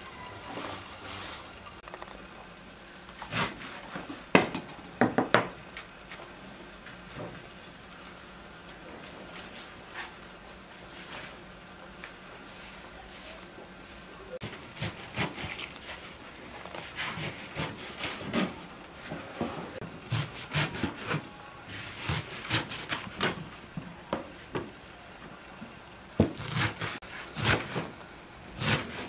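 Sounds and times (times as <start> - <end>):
leaves rustling: 0.0 - 4.3.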